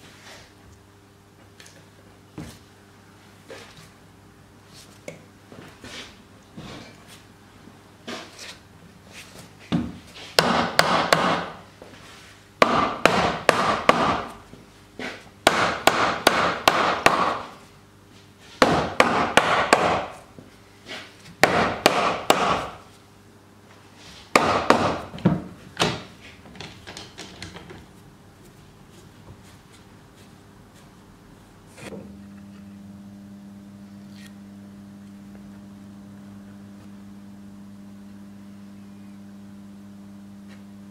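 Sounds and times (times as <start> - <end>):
mallet knocking on wood: 12.6 - 14.3, 18.6 - 20.1, 21.4 - 22.7.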